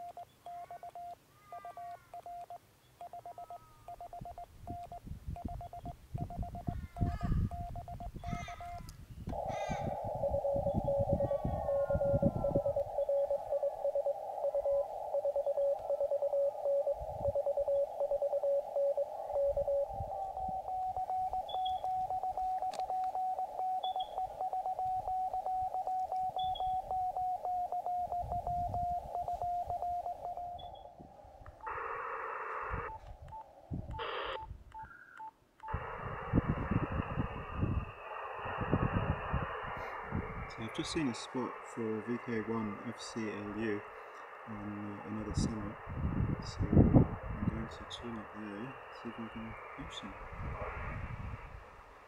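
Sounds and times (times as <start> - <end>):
brief radio beep: 0.0 - 30.9
morse code tones: 0.0 - 31.0, 31.6 - 50.2
receiver hiss: 0.0 - 52.0.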